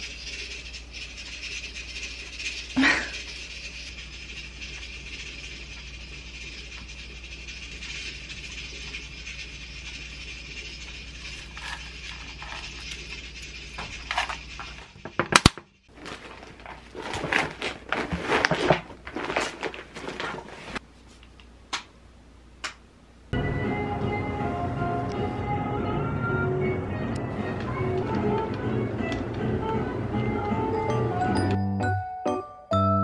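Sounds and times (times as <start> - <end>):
seed shaker shaking: 0.0 - 15.1
background hum: 0.0 - 31.4
objects handled on a table: 11.4 - 21.4
cloth bag rustling: 15.9 - 20.8.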